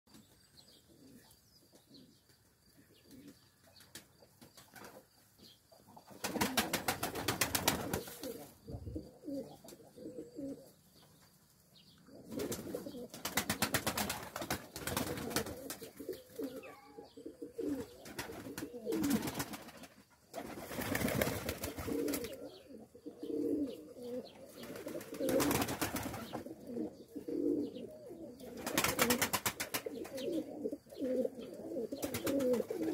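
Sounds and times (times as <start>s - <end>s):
pigeons cooing: 5.9s - 11.0s, 12.0s - 32.9s.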